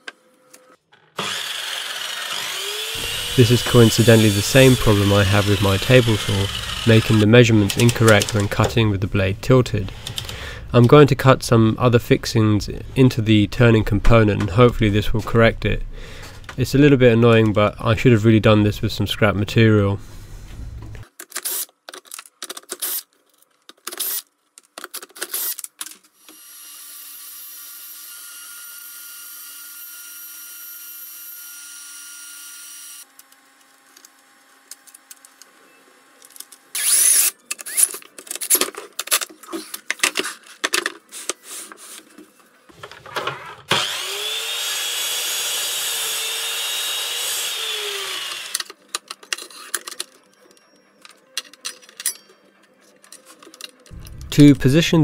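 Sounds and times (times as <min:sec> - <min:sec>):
power tool running: 0:01.1 - 0:07.8, 0:36.7 - 0:37.9, 0:43.7 - 0:48.7.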